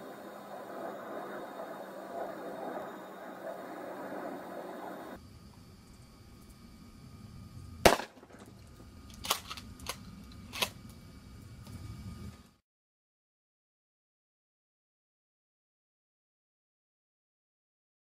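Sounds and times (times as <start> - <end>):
shotgun blast: 7.8 - 8.4
fainter sharp cracks: 7.9 - 10.9.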